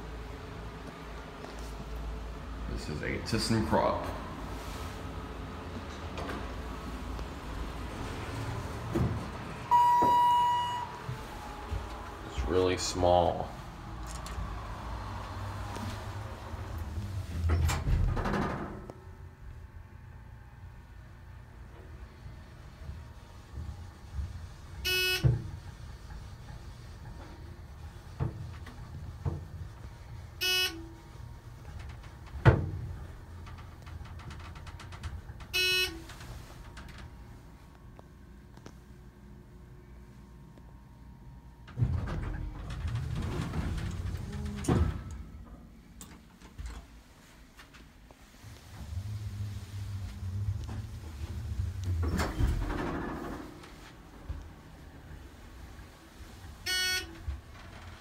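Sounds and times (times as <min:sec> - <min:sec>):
low steady hum: 0:00.0 - 0:14.8
elevator low rumble: 0:00.0 - 0:58.0
short electronic beep: 0:09.7 - 0:11.0, 0:56.7 - 0:57.1
elevator arrival chime: 0:09.7 - 0:11.5, 0:56.6 - 0:57.2.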